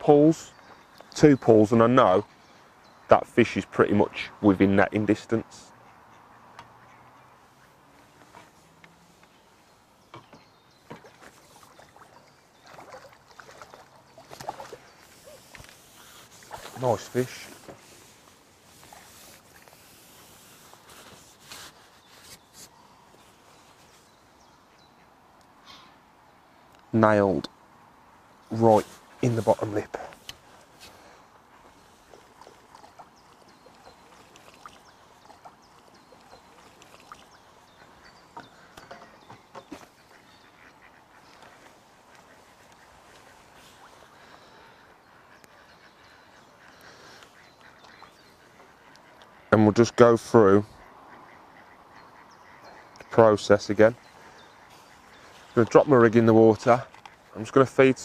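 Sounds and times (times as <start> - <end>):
water trickling and dripping: 10.5 - 17.5, 31.6 - 39.8
water splashing: 10.8 - 21.4, 31.7 - 38.8.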